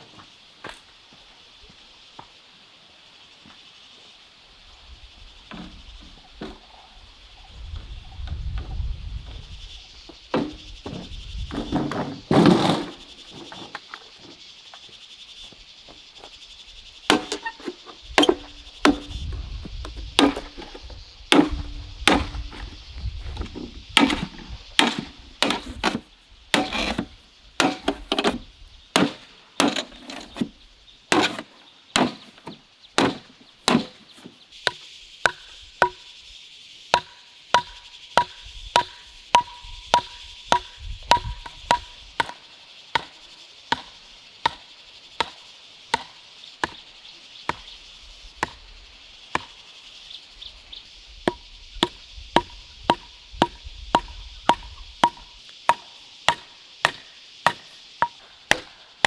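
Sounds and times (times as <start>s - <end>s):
insects buzzing: 0.0s - 59.0s
hand tool chopping with metallic ring: 37.0s - 42.3s.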